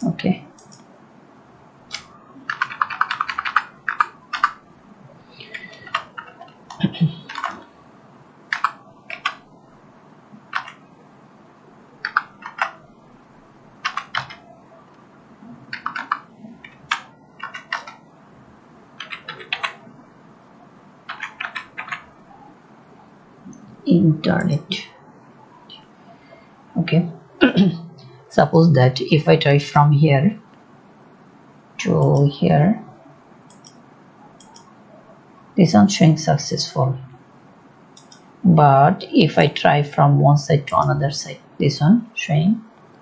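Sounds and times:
computer keyboard typing: 0:00.5 - 0:00.9, 0:01.9 - 0:04.6, 0:05.4 - 0:07.7, 0:08.5 - 0:09.5, 0:10.5 - 0:10.8, 0:12.0 - 0:12.8, 0:13.8 - 0:14.6, 0:15.7 - 0:18.0, 0:19.0 - 0:19.9, 0:21.1 - 0:22.2, 0:33.5 - 0:33.8, 0:34.4 - 0:34.7, 0:38.0 - 0:38.3.

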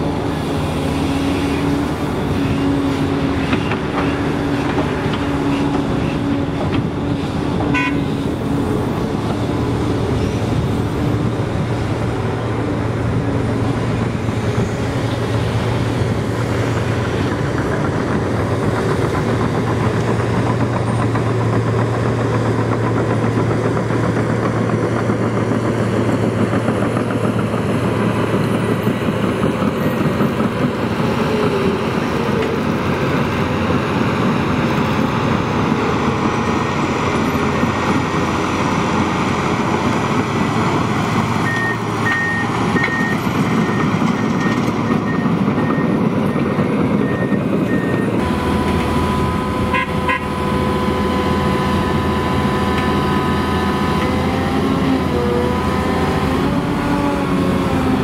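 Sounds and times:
crawler dozer pushing soil: 0:00.0 - 0:58.0
diesel excavator digging: 0:00.0 - 0:58.0
excavator engine running with whine: 0:00.0 - 0:58.0
reversing alarm beeping: 0:41.4 - 0:53.3.

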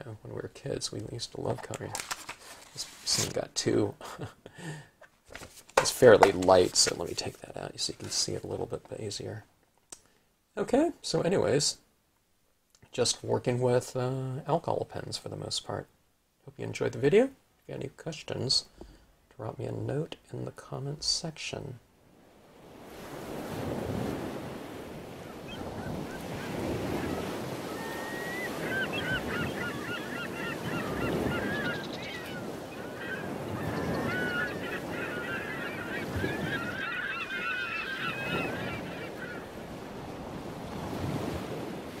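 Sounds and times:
ocean surf washing in: 0:22.1 - 0:42.0
birds calling: 0:25.0 - 0:41.8.

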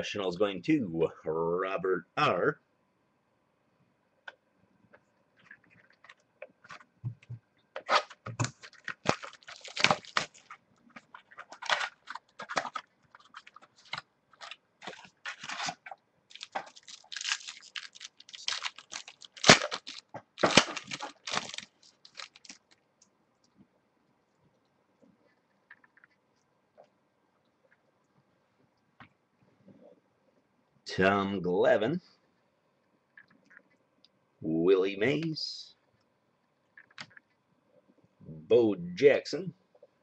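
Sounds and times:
wrapper crinkling and tearing: 0:07.8 - 0:22.8.

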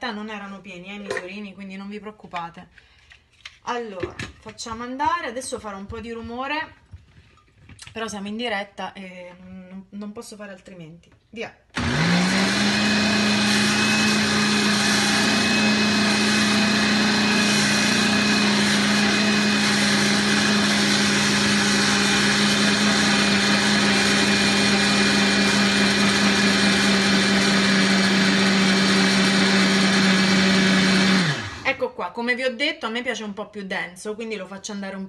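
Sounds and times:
blender motor running: 0:11.8 - 0:31.7.

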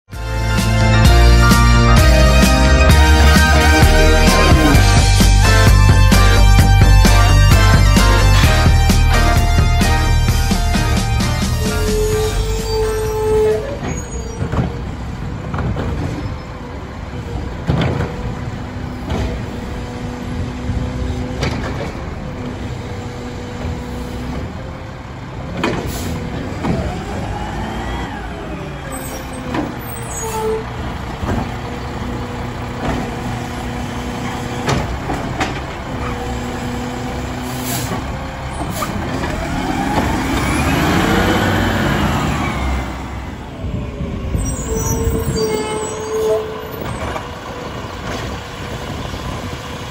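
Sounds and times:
garbage truck diesel engine: 0:00.1 - 0:49.9
truck clunks: 0:10.1 - 0:49.9
air brake hisses: 0:25.8 - 0:26.2, 0:37.4 - 0:38.0.

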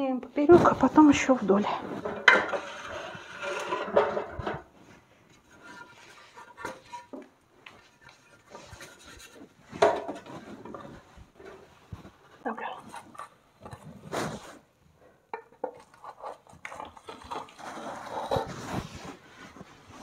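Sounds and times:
metal tool scraping plaster: 0:01.9 - 0:04.7, 0:05.3 - 0:11.7, 0:15.4 - 0:20.0.

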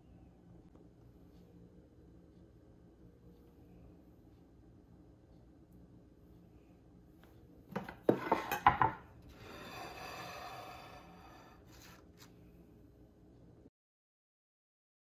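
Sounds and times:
dishes clattering on wooden table: 0:07.7 - 0:10.4
platter scraping across wood: 0:07.8 - 0:12.3.

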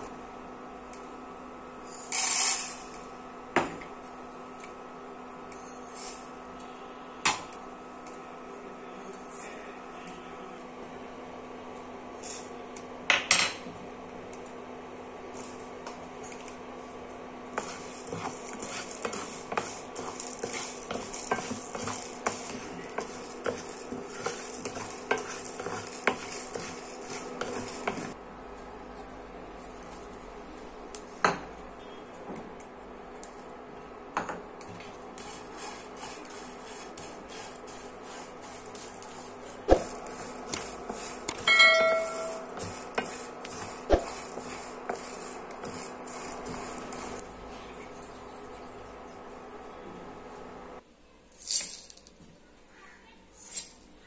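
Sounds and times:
light sizzle: 0:15.2 - 0:33.6, 0:34.6 - 0:49.8
spatula scraping spices in a pan: 0:17.5 - 0:28.2, 0:34.7 - 0:47.2
seeds rattling against pan: 0:51.4 - 0:52.1.

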